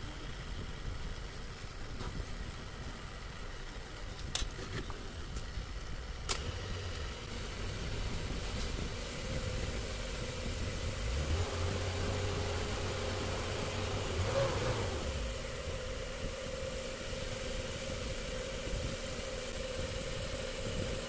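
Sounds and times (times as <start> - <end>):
boring machine humming: 7.2 - 21.0.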